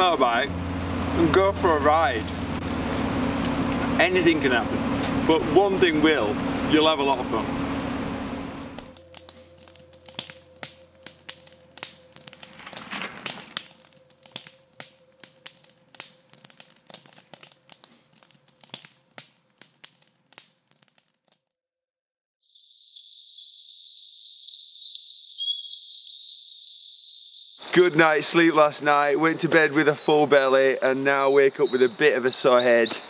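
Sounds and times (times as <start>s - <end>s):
campfire crackling and popping: 0.5s - 21.4s
insect chirring: 8.5s - 19.1s, 22.4s - 27.7s
bird chirp: 22.5s - 27.7s, 29.8s - 33.0s.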